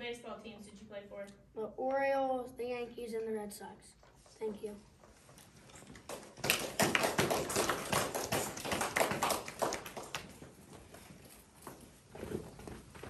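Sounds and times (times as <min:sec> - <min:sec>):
audience clapping: 0:05.9 - 0:11.0.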